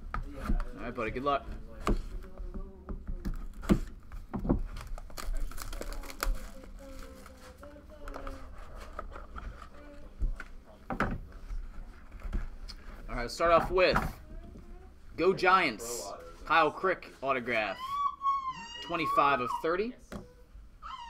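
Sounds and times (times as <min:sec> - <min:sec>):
plastic shrink wrap crumpling: 0:04.6 - 0:10.0.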